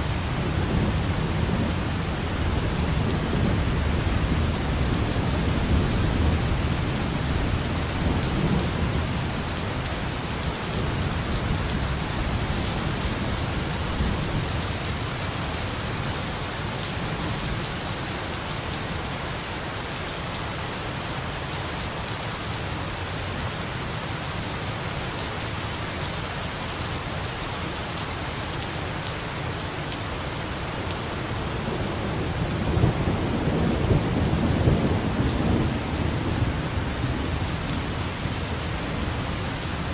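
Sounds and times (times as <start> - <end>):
low rumble of thunder: 31.8 - 39.7.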